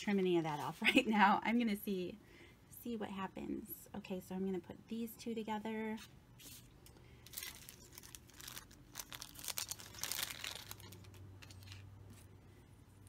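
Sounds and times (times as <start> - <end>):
paper crinkling and rustling: 7.2 - 12.3.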